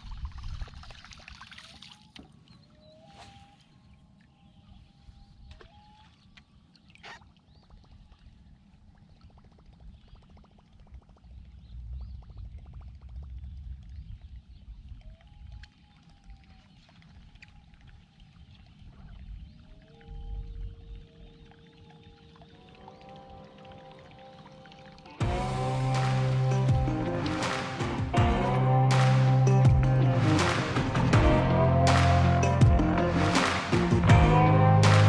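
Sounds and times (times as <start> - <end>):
water lapping against hull: 0.0 - 25.2
low rumble: 10.8 - 15.0, 25.2 - 35.0
music: 22.5 - 35.0.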